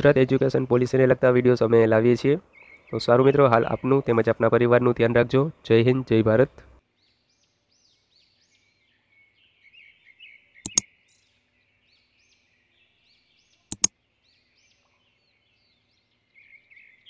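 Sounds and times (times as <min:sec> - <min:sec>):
small birds chirping: 0:02.2 - 0:04.4, 0:06.4 - 0:17.0
button tap clicks: 0:13.7 - 0:13.9.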